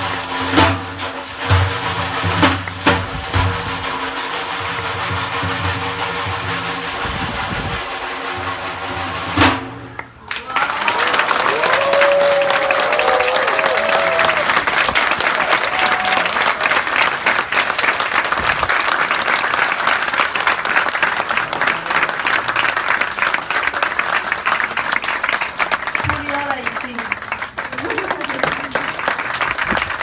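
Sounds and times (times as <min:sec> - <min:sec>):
audience applauding: 0:09.9 - 0:30.0.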